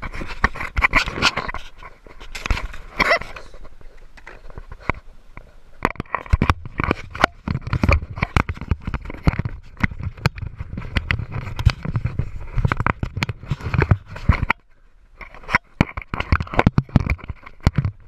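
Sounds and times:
camera handling knocks and scrapes: 5.8 - 14.6, 15.2 - 18.0.

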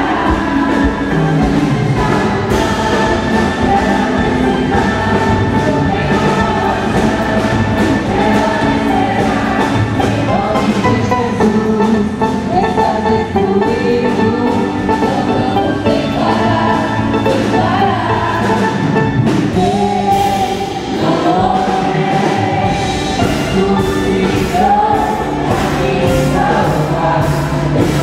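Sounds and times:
band with drums: 0.0 - 28.0
voices singing worship song: 0.0 - 28.0.

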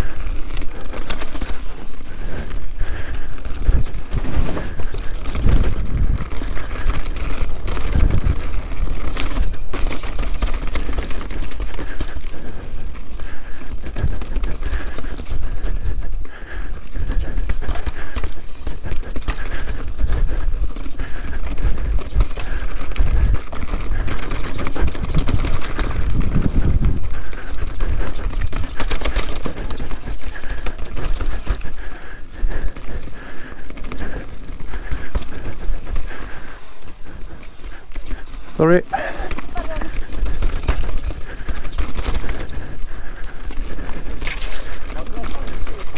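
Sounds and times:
bike suspension clattering: 0.0 - 45.9
bike tyres roaring over gravel: 0.0 - 45.9
wind rumble on microphone: 2.0 - 11.0, 18.8 - 30.2.

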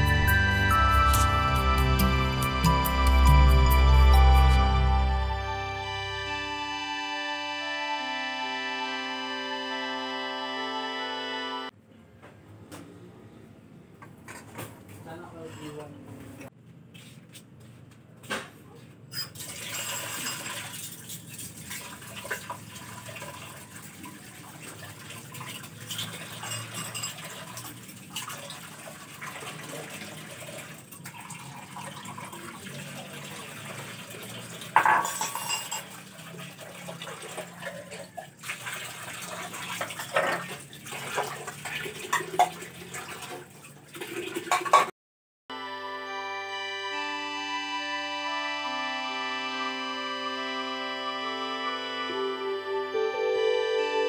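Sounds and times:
dishes clinking in a sink: 19.1 - 20.9, 25.8 - 28.3, 34.7 - 36.1, 39.7 - 42.7, 44.5 - 44.9
running tap water: 19.2 - 44.9.

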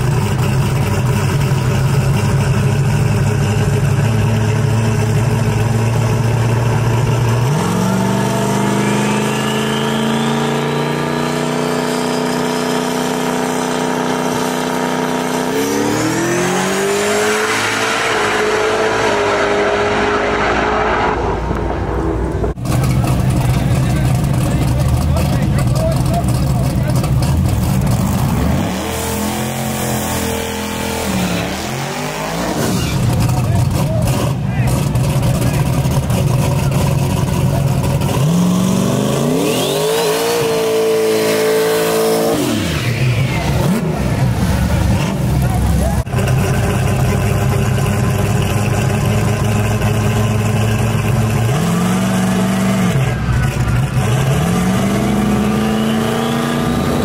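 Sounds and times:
car engine at full throttle: 0.0 - 57.0
high turbo whistle: 8.6 - 10.7, 39.4 - 40.5.

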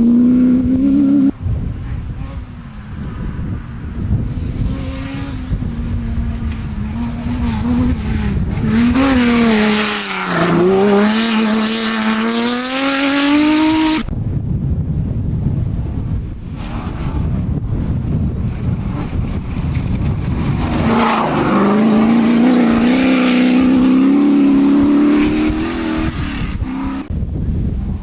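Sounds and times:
rally car engine passing: 2.2 - 14.1, 18.5 - 27.1.

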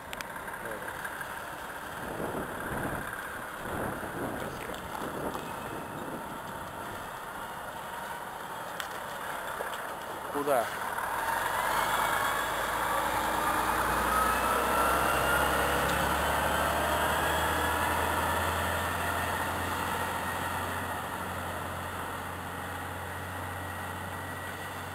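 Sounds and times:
truck diesel engine accelerating: 0.0 - 24.9
rising whine: 11.3 - 21.5.

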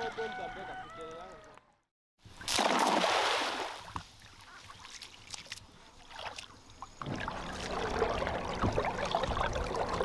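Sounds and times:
water splashing and lapping: 2.4 - 10.0.

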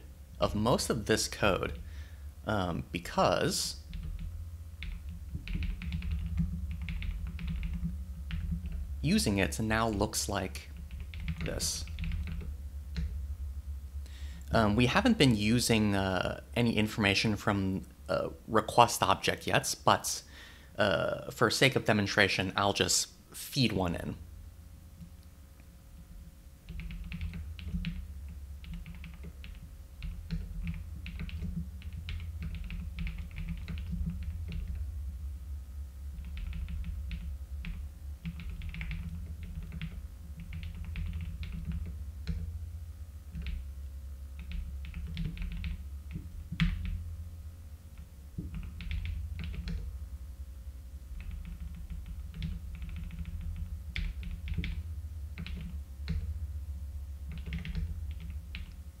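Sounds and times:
steady low hum: 0.0 - 59.0
typing on keyboard: 3.9 - 8.8, 10.8 - 13.1, 26.7 - 28.0, 28.6 - 34.8, 36.2 - 42.5, 44.4 - 47.0, 48.0 - 49.8, 51.2 - 54.8, 55.4 - 56.3, 57.3 - 58.7.

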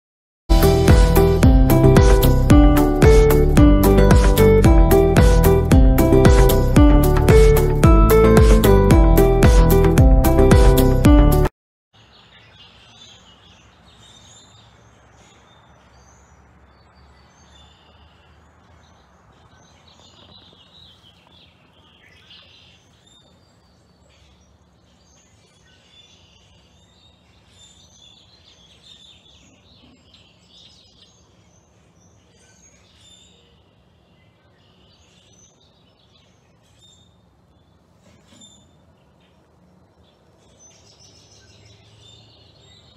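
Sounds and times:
flock of birds chirping: 12.0 - 42.9.

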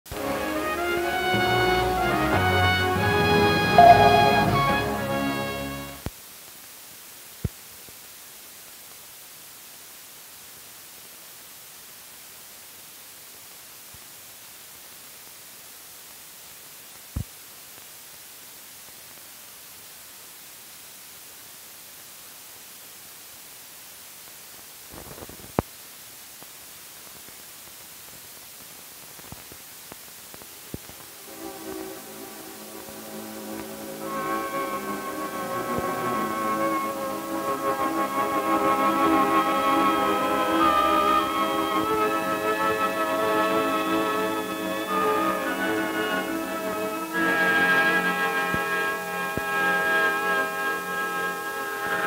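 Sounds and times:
old film soundtrack hiss: 0.1 - 52.0
brief crackle: 24.8 - 25.8, 26.4 - 31.1.

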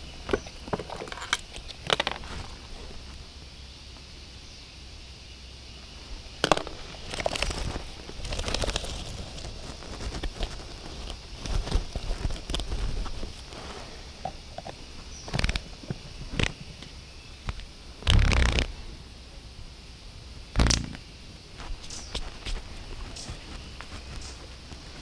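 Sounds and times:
faint high hiss: 0.0 - 25.0
plastic items clicking and crackling: 6.4 - 13.2.

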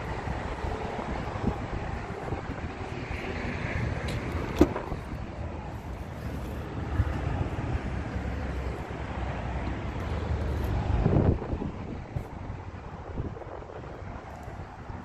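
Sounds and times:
wind noise on microphone: 0.0 - 15.0
car door latch click: 4.1 - 5.0.

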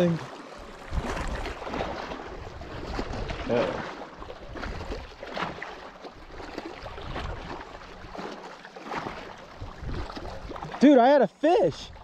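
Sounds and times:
waves lapping on rocky shore: 0.0 - 12.0
wind buffeting microphone: 0.7 - 3.5, 9.5 - 10.6.

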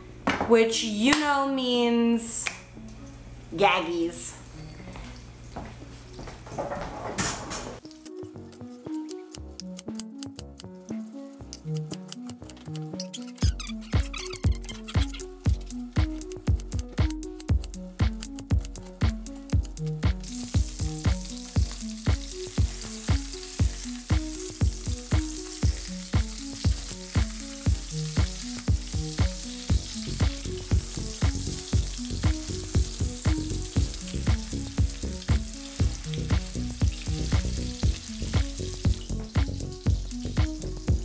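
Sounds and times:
background music with steady beat: 7.8 - 41.0
meat sizzling in oil: 20.1 - 41.0.

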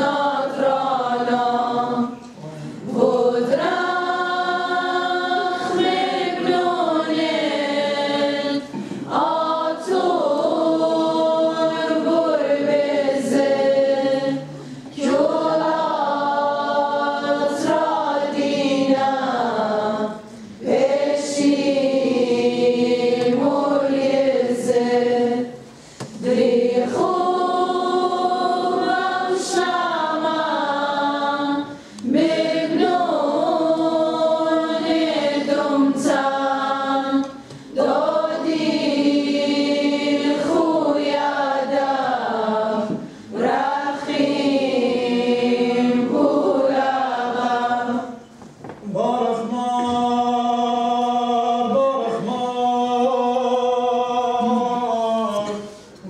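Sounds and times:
choir singing a chant: 0.0 - 55.8.

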